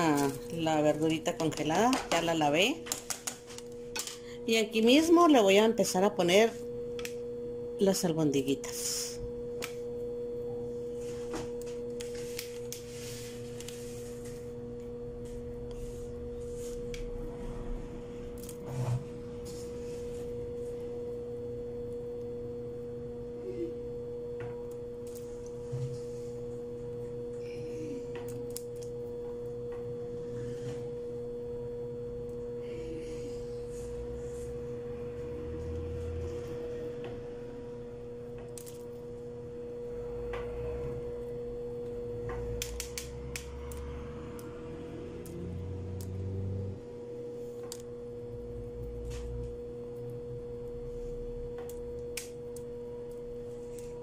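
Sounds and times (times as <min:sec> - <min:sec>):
steady two-pitch hum: 0:00.0 - 0:54.0.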